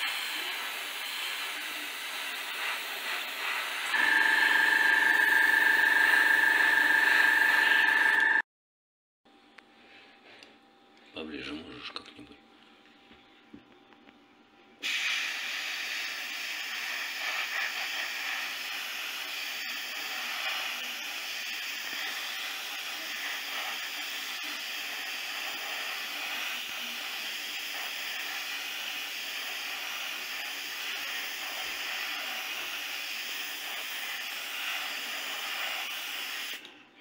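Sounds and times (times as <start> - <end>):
airbrush spraying hiss: 0.0 - 3.9, 14.8 - 36.6.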